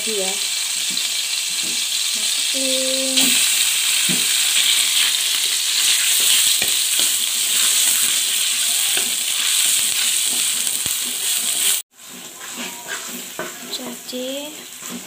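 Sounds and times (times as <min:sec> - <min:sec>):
paste sizzling in oil: 0:00.0 - 0:15.0
metal spatula scraping wok: 0:03.0 - 0:15.0
spatula knocking wok: 0:03.2 - 0:15.0.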